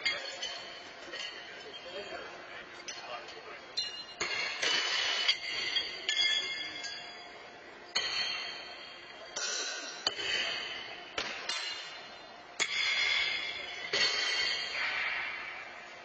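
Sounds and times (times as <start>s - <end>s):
horseshoes clanging on stakes: 3.8s - 7.3s, 7.9s - 15.2s.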